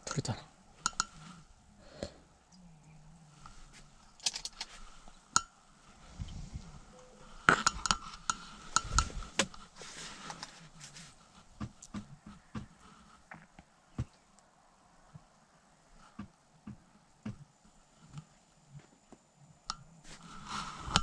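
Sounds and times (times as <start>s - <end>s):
fishing tackle clicking and clinking: 0.8s - 1.2s.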